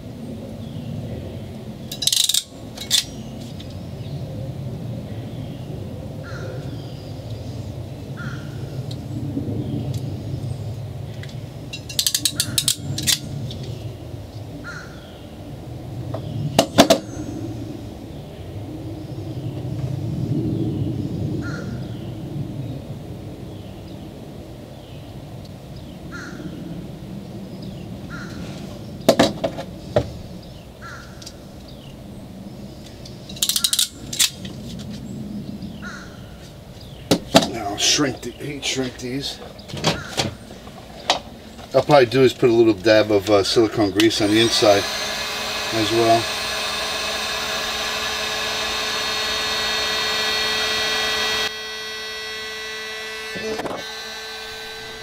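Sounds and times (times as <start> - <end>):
ratcheting crimp tool clicking: 1.9 - 3.1, 11.8 - 13.2, 33.3 - 34.4
bird calling: 12.0 - 13.9, 27.6 - 28.9, 29.8 - 32.0, 35.5 - 51.5
heat gun blowing: 44.0 - 55.0.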